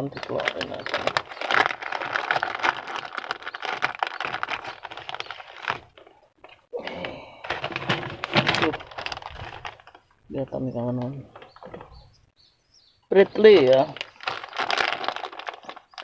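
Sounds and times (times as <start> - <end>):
plastic bag crinkling: 0.0 - 6.6, 7.2 - 10.1, 13.4 - 16.0.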